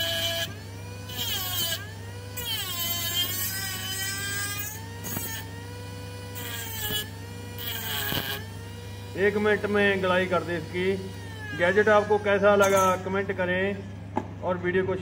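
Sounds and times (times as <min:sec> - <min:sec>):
small grinder motor whining: 0:00.0 - 0:14.0.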